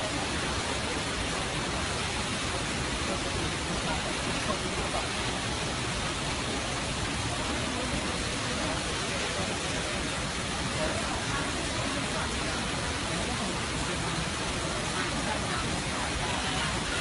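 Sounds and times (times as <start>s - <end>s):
stream water rushing: 0.0s - 17.0s.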